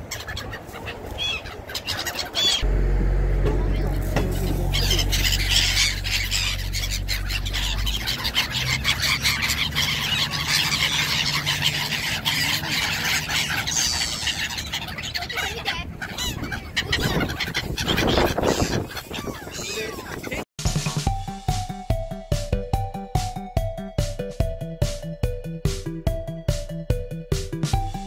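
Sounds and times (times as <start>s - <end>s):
gulls calling: 0.0s - 20.5s
railcar diesel engine running: 2.6s - 6.7s.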